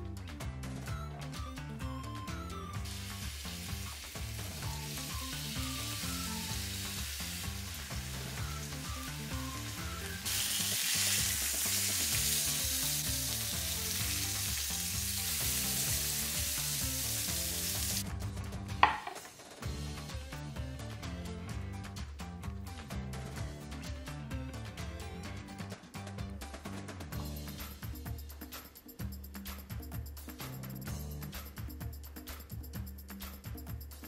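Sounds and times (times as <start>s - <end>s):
music with steady beat: 0.0s - 34.0s
chicken sizzling on grill: 2.8s - 18.0s.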